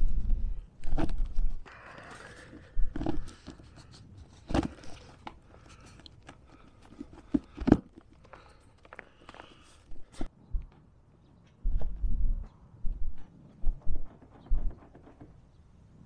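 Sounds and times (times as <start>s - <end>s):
hands handling cable clicks and rubbing: 0.7s - 12.0s.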